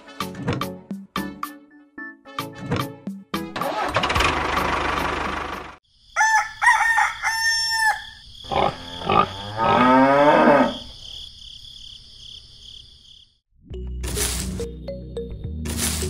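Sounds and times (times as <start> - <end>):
chicken calls: 6.1 - 9.2.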